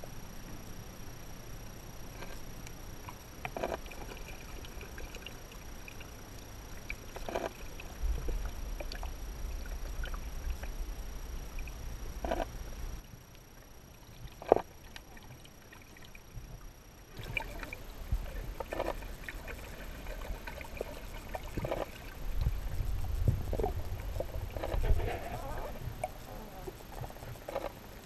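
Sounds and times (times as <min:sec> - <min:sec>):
muffled underwater rumble: 0:00.0 - 0:28.0
underwater knocks and clicks: 0:03.0 - 0:06.1, 0:06.8 - 0:10.7, 0:11.5 - 0:12.6, 0:14.2 - 0:15.4, 0:17.2 - 0:26.2, 0:26.8 - 0:27.8.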